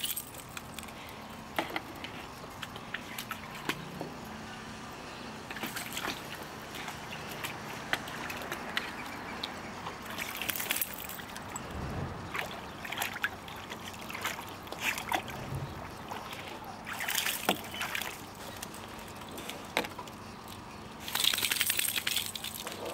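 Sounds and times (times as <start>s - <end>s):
puppy splashing in water: 1.9s - 4.3s, 5.4s - 22.9s
water dripping and trickling: 5.4s - 22.9s.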